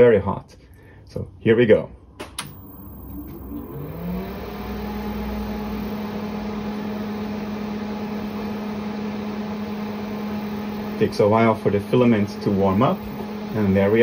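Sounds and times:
power switch click: 0:02.2 - 0:03.7
cooling fan whirring: 0:02.2 - 0:14.0.

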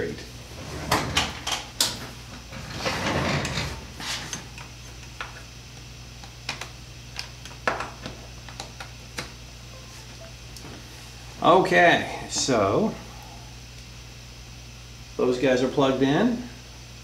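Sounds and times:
steady low hum: 0:00.0 - 0:17.0
metal drawer sliding: 0:00.4 - 0:04.5.

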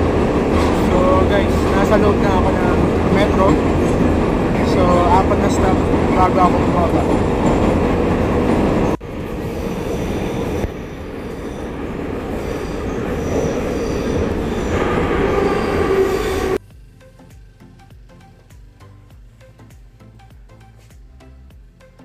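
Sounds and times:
metro train rumbling: 0:00.0 - 0:17.0
high wheel squeals: 0:08.8 - 0:16.6
quiet background music: 0:16.6 - 0:22.0.

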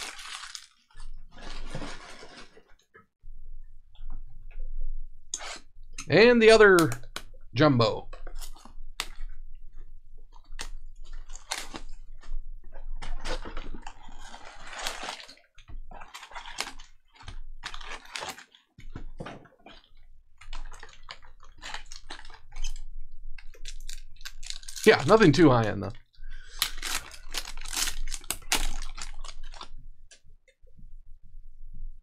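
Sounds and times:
wrapper and cards crinkling: 0:00.0 - 0:02.5, 0:10.5 - 0:12.2, 0:13.1 - 0:18.7, 0:19.8 - 0:22.8, 0:23.4 - 0:29.8.

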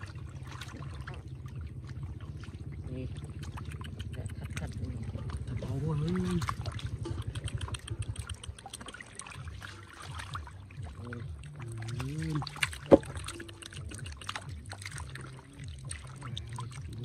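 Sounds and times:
fish thrashing in water: 0:00.0 - 0:17.0.

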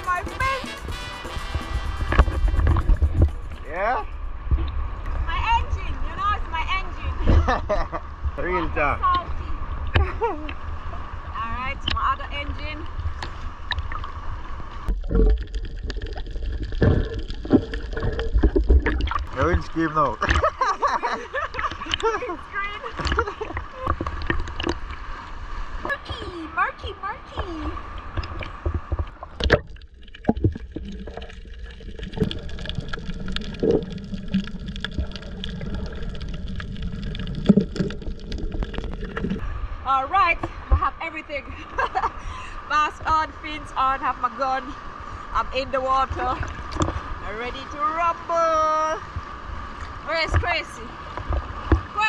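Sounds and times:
low underwater rumble: 0:00.0 - 0:52.0
sea water washing: 0:00.0 - 0:52.0
water gurgling: 0:00.0 - 0:52.0
crackle of small clicks: 0:14.9 - 0:19.4, 0:23.0 - 0:25.0, 0:28.0 - 0:39.4.

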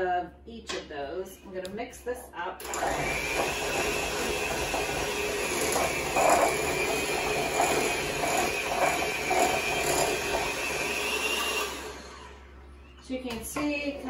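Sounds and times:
electric mixer whirring: 0:02.6 - 0:12.9.

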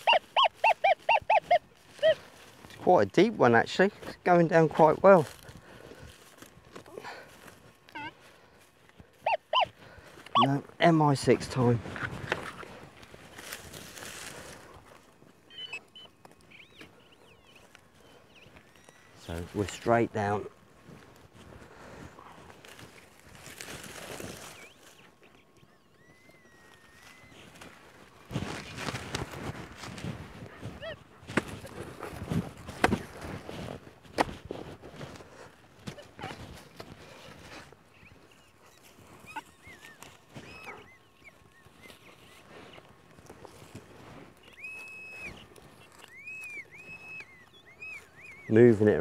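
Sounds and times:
faint chirps: 0:15.5 - 0:19.6, 0:24.1 - 0:27.8
hand digging in loose soil: 0:27.1 - 0:40.6.

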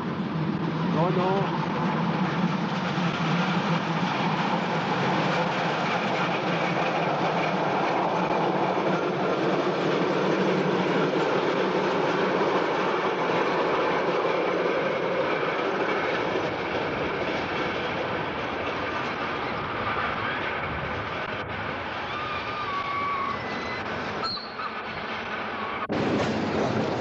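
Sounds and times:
tram wheels on rails: 0:00.0 - 0:27.0.

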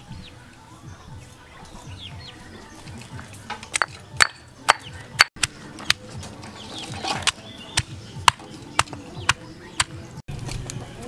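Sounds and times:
stone pestle pounding in mortar: 0:03.8 - 0:06.0.

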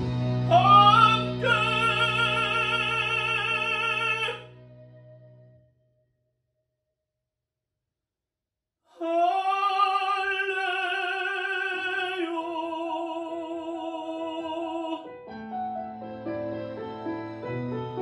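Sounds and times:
instrumental backing track: 0:00.0 - 0:05.6, 0:15.1 - 0:18.0
man singing with vibrato: 0:00.4 - 0:04.5, 0:08.9 - 0:15.2.

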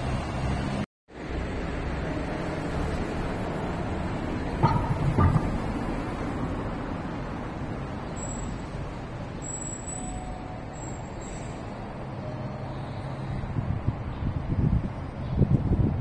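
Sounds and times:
road traffic noise: 0:00.0 - 0:16.0
low thump: 0:04.6 - 0:05.9.

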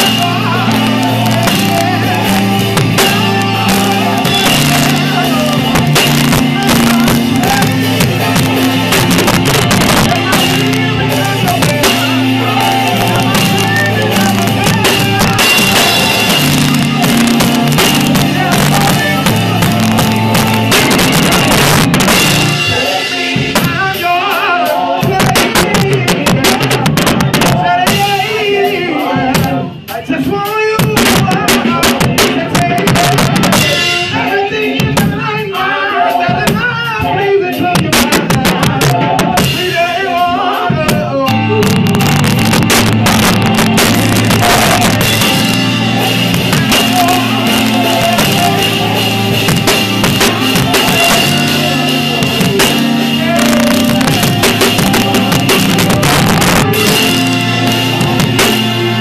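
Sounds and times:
drum kit: 0:00.0 - 0:59.0
electronic keyboard played quickly: 0:00.0 - 0:59.0
heavy low notes: 0:00.0 - 0:59.0.

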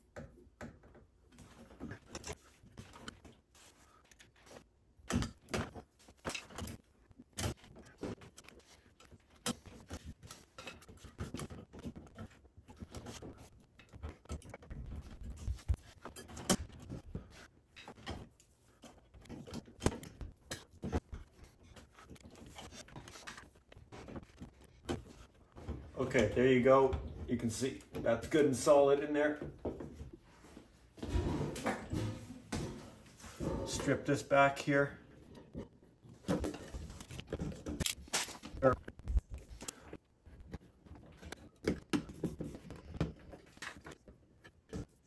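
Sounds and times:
clicks knocks and scrapes of handling: 0:00.1 - 0:28.5.

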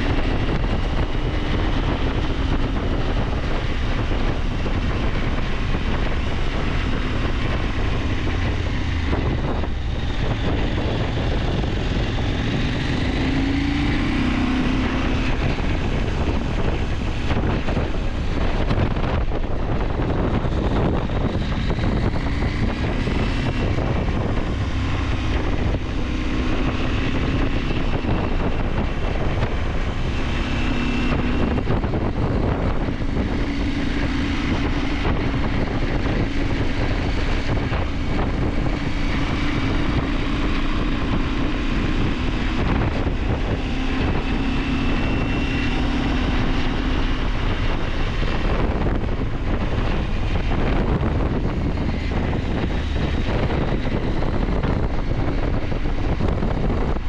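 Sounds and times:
motorcycle engine running: 0:00.0 - 0:57.0
wind rushing over microphone: 0:00.0 - 0:57.0.

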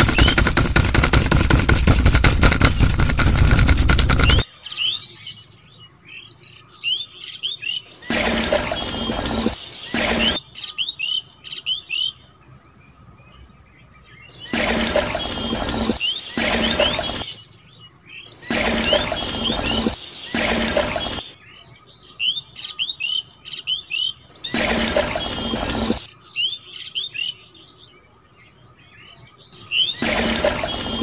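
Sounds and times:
small motor rattling: 0:00.0 - 0:04.4, 0:14.5 - 0:17.2, 0:24.5 - 0:26.1, 0:30.0 - 0:31.0
birds chirping: 0:00.0 - 0:31.0.

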